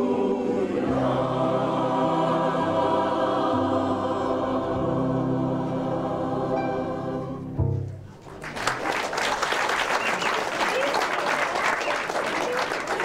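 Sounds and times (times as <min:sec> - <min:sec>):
choir singing a chord: 0:00.0 - 0:07.7
keyboard accompaniment: 0:00.0 - 0:08.2
audience applause: 0:08.2 - 0:13.0.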